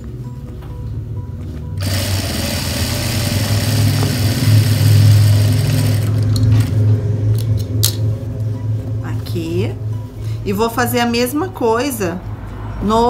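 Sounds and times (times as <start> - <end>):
sewing machine stitching: 1.8 - 6.7.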